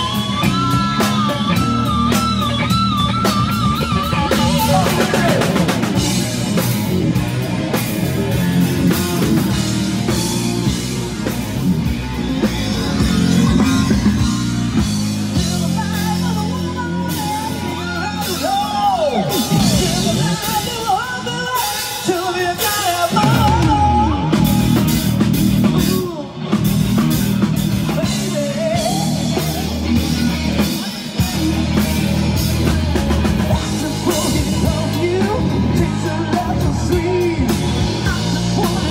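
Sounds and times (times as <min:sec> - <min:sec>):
distorted electric guitar: 0:00.0 - 0:38.9
drum kit: 0:00.0 - 0:38.9
man singing into microphone: 0:15.4 - 0:26.4, 0:27.8 - 0:29.8, 0:33.5 - 0:38.9.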